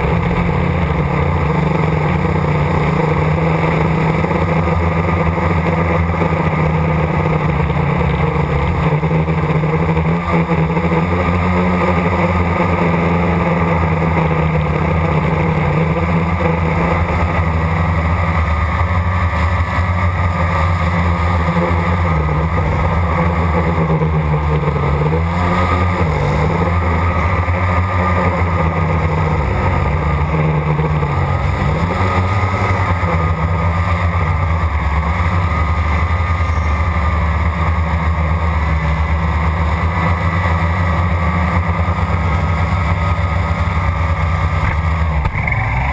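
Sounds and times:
drone propellers humming: 0.0 - 45.9.

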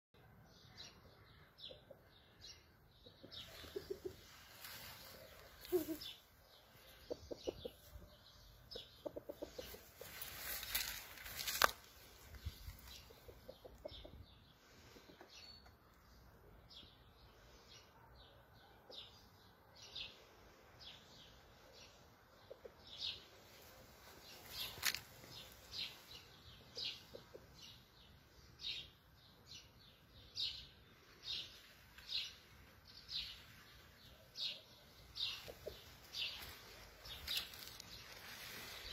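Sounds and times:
small bird chirping: 0.6 - 16.2, 20.9 - 38.9
low clucking calls: 3.1 - 7.9, 8.7 - 10.5.

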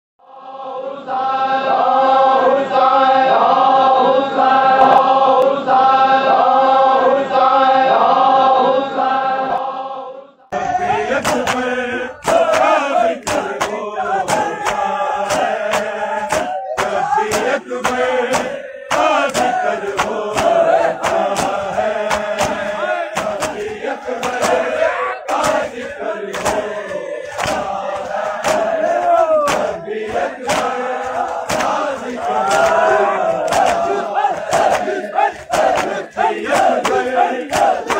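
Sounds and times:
chanted vocal melody: 0.2 - 37.9
men chanting together: 0.2 - 37.9
hand slaps on chests: 11.1 - 37.9.

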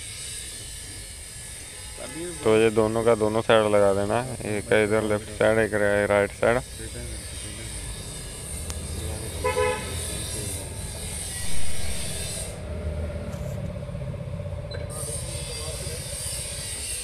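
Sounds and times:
road traffic: 0.0 - 17.0
vehicle horn toot: 1.8 - 3.6, 9.2 - 10.6.

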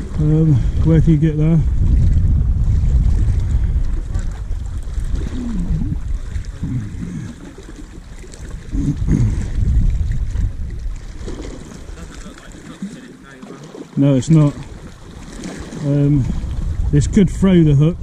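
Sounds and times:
wind rumbling on microphone: 0.0 - 13.1, 13.7 - 18.0.

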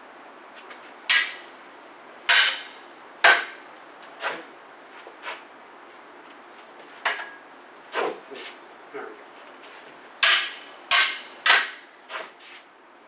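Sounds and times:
sabre blades clashing: 1.1 - 1.6, 2.3 - 3.6, 10.2 - 12.0.

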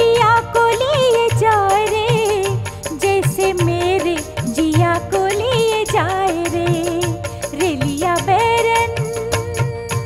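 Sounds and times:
steady drum beats: 0.0 - 10.0.

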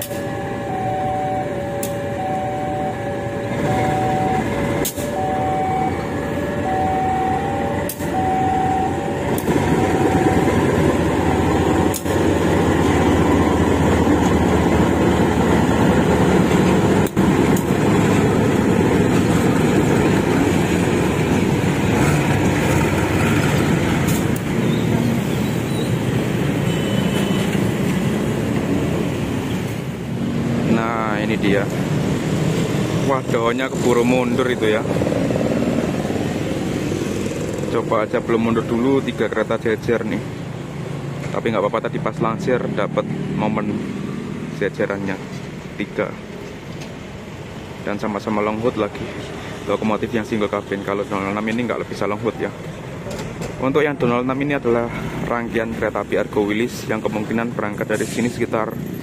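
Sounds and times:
level crossing warning tones: 0.0 - 24.0
diesel locomotive passing: 0.0 - 59.0
sharp clicks: 1.8 - 2.0.

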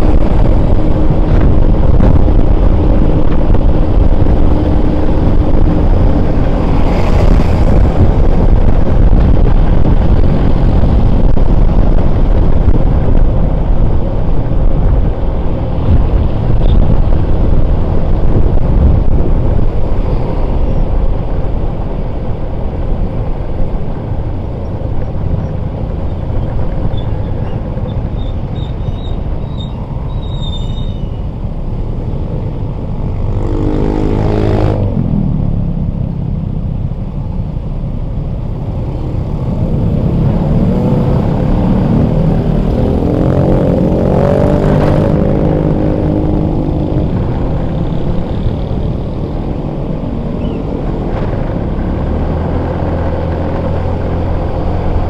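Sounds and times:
wind and road noise: 0.0 - 55.0.

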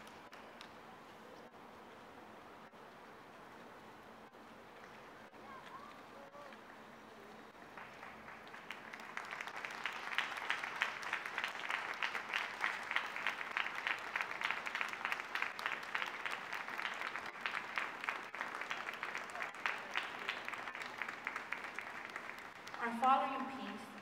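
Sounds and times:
audience applauding: 7.6 - 24.0.

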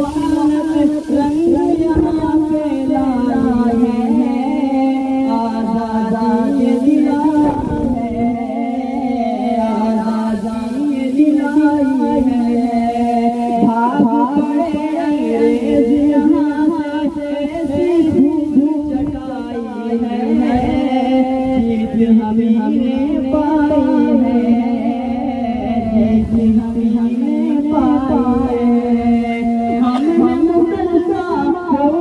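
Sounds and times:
boy singing into a microphone: 0.0 - 32.0.

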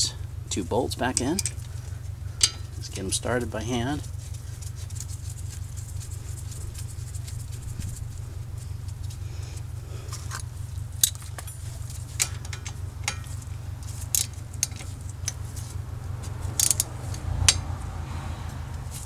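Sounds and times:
steady low hum: 0.0 - 19.0
metallic wrench clicks: 16.5 - 17.6.

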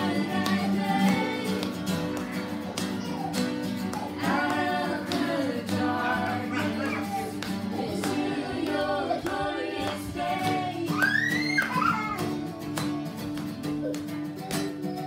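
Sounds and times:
group singing: 0.0 - 2.8, 3.8 - 11.8
hands clapping on the beat: 0.0 - 15.0
strummed acoustic guitars: 0.0 - 15.0.

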